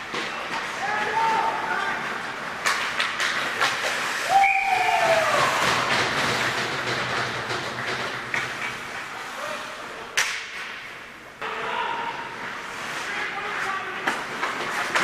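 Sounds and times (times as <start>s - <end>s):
skates scraping on ice: 0.0s - 10.8s, 11.9s - 15.0s
hockey sticks and puck clacking: 0.0s - 15.0s.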